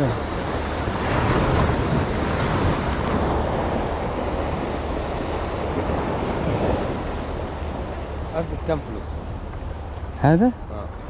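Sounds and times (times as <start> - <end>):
sea waves breaking on shore: 0.0 - 11.0
wind buffeting microphone: 0.0 - 11.0.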